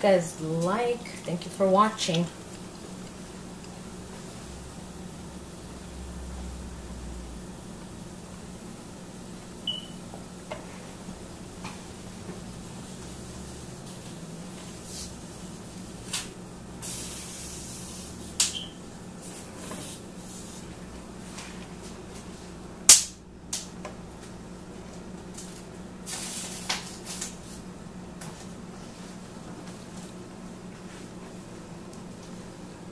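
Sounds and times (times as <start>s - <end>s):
low room hum: 0.0s - 32.9s
hissing rustles: 10.6s - 18.4s, 25.4s - 27.7s.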